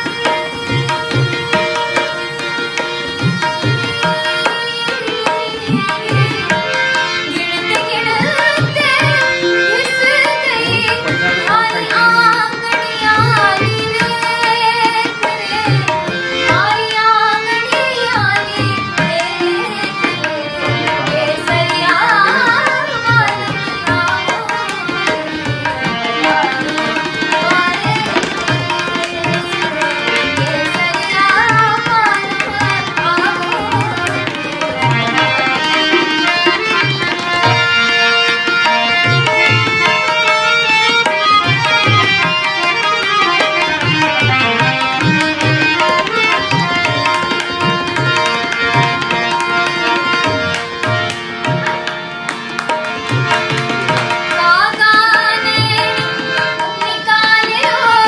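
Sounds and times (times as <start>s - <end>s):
woman singing: 0.0s - 37.6s, 54.3s - 58.0s
harmonium: 0.0s - 58.0s
tabla strokes: 0.0s - 58.0s.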